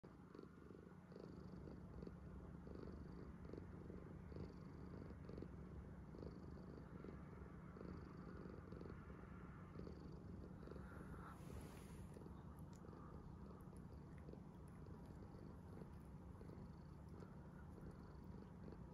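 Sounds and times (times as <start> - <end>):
cat purring: 0.0 - 18.9
rustle: 11.2 - 12.9.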